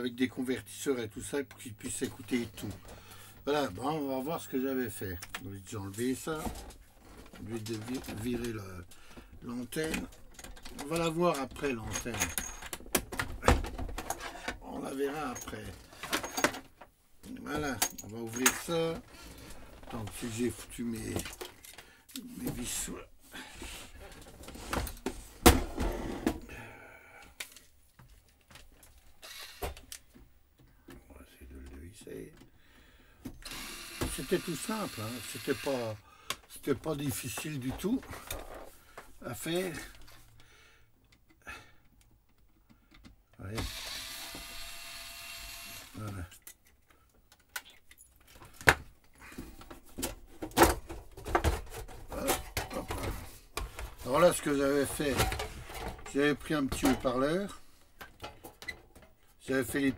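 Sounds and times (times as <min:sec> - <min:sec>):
cordless screwdriver whirring: 0:29.2 - 0:29.8, 0:33.4 - 0:35.8, 0:43.6 - 0:46.0.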